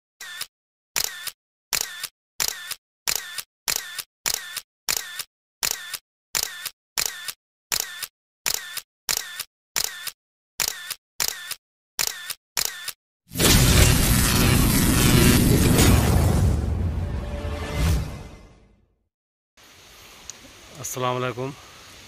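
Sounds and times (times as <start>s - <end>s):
camera shutter double click: 0.2s - 13.0s.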